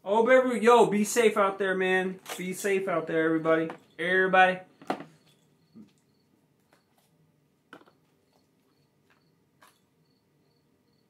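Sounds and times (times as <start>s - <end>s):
cricket chirping: 2.6s - 7.1s, 7.8s - 11.0s.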